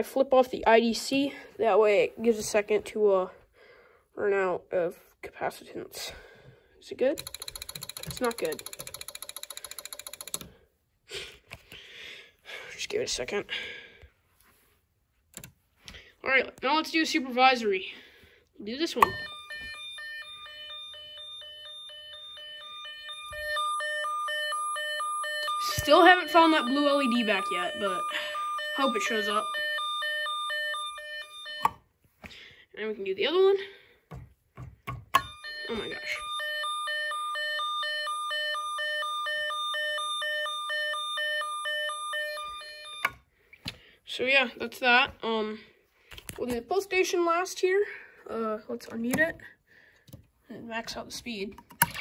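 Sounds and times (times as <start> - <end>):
two-pitch electronic alarm tone: 19.0 - 31.8, 35.2 - 43.2.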